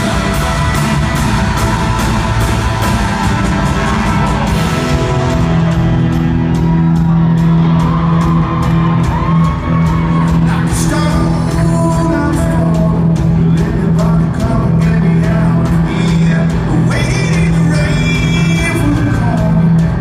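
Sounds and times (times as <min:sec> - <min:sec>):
bass: 0:00.0 - 0:20.0
electric guitars: 0:00.0 - 0:20.0
steady drum beat: 0:00.0 - 0:20.0
person singing: 0:09.8 - 0:20.0.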